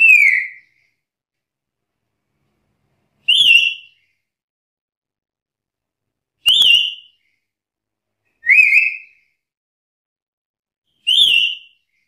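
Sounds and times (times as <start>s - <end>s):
parrot whistled calls: 0.0s - 0.7s, 3.2s - 4.0s, 6.4s - 7.2s, 8.4s - 9.2s, 11.0s - 11.8s.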